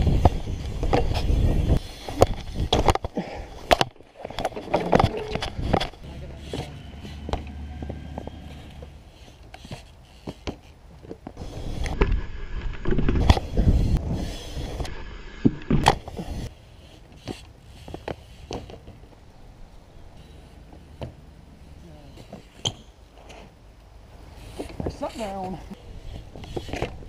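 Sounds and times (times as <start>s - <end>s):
wind rumbling on microphone: 0.0s - 3.0s, 4.3s - 9.2s, 11.4s - 16.5s
bike tyres rolling on concrete: 0.0s - 27.0s.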